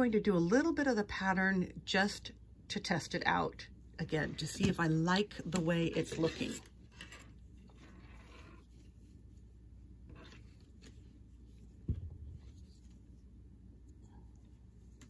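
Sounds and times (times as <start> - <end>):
yarn and knitting needles rustling: 4.0 - 15.0
low thump: 11.8 - 12.5.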